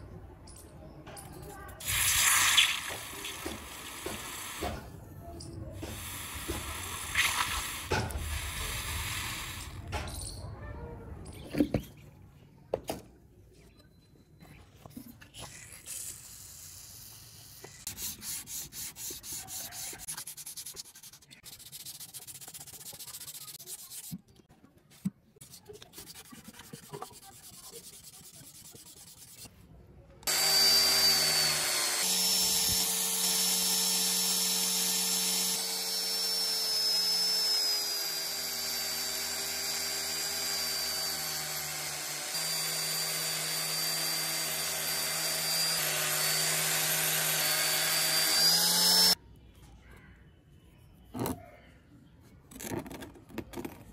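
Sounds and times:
hot blade hissing in water: 1.8 - 4.8
sandpaper rubbing on knife blade: 17.5 - 24.2, 25.4 - 29.5
power buffer whining: 30.3 - 49.2.

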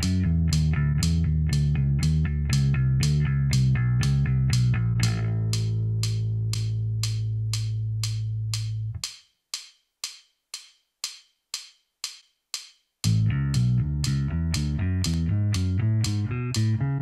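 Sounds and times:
electric bass low note: 0.0 - 9.0, 13.1 - 17.0
metronome clicking: 0.0 - 17.0.

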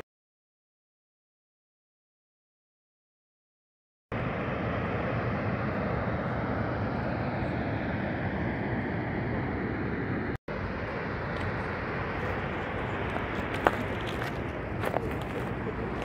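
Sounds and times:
steady outdoor rushing noise: 4.1 - 16.0.

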